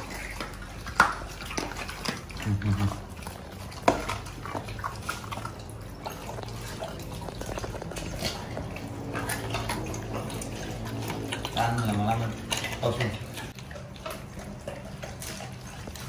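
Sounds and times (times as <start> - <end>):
dogs chewing and crunching: 0.0 - 16.0.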